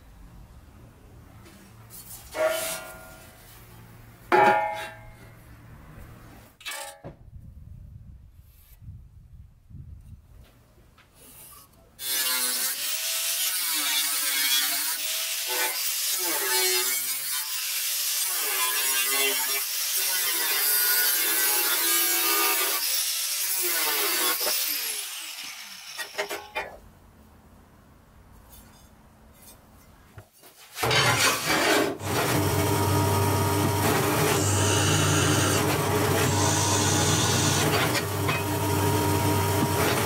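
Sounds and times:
angle grinder cutting steel: 12.0s - 26.6s, 30.8s - 40.0s
drill press humming: 32.0s - 40.0s.

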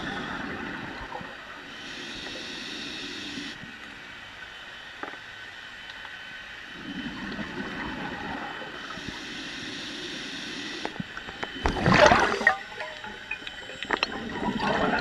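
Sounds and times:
faint steady whine: 0.0s - 15.0s
underwater water rush: 10.5s - 15.0s.

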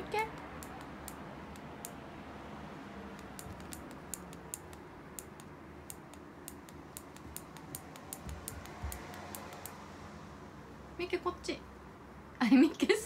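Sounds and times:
cat claws clicking on carpet: 0.3s - 2.0s, 3.1s - 9.8s.

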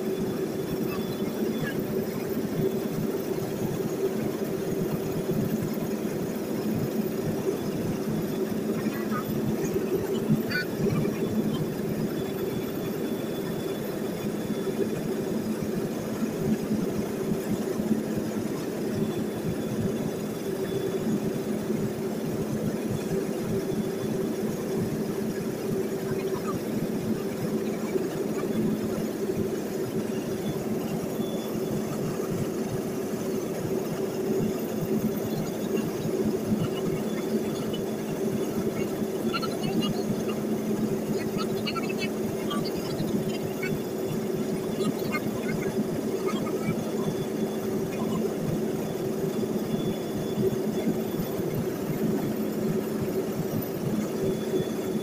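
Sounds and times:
propeller plane engine drone: 0.0s - 55.0s.

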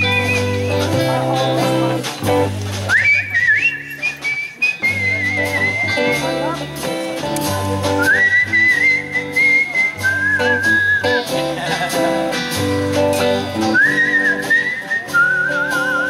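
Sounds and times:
whistled melody: 0.0s - 0.8s, 2.9s - 6.3s, 7.9s - 11.3s, 13.6s - 16.0s
rock band playing: 0.0s - 16.0s.

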